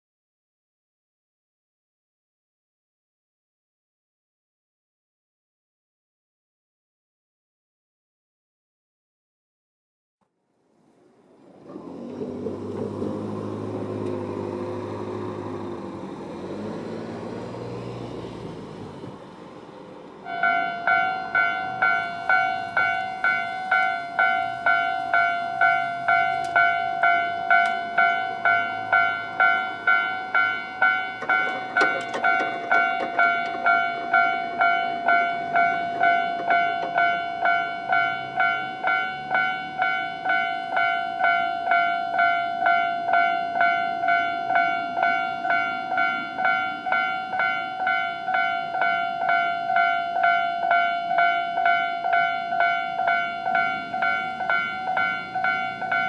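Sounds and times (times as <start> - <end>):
car passing: 10.6 - 56.0
level crossing alarm dinging: 20.2 - 56.0.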